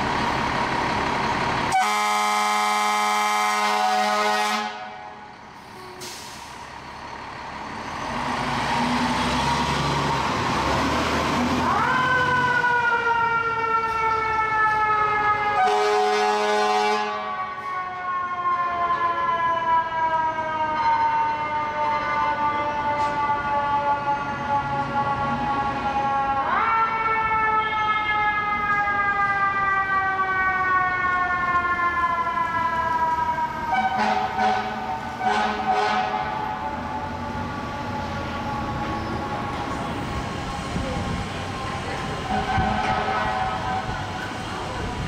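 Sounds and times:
air horn blast: 0:01.7 - 0:05.1, 0:15.6 - 0:17.4, 0:33.7 - 0:36.5, 0:42.3 - 0:43.9.

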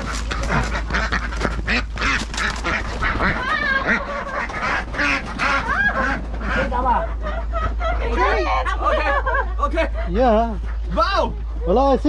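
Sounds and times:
geese honking: 0:00.0 - 0:09.4
ducks quacking: 0:00.0 - 0:12.0.

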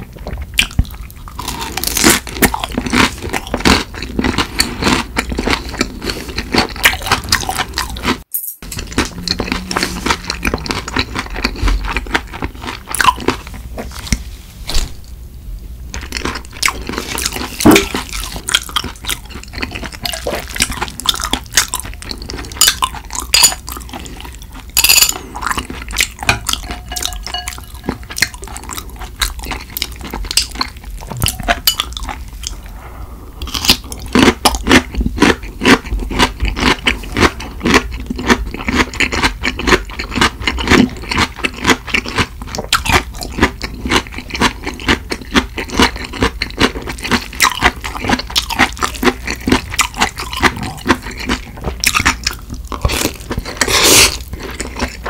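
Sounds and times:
chopsticks tapping glass dish: 0:26.2 - 0:28.0
noodles slurped and chewed: 0:33.4 - 0:55.0.

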